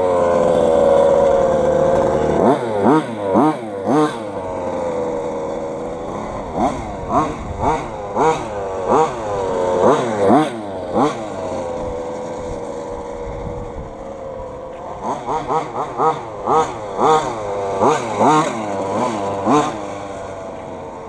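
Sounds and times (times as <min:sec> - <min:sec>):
small two-stroke engine revving: 0:00.0 - 0:21.0.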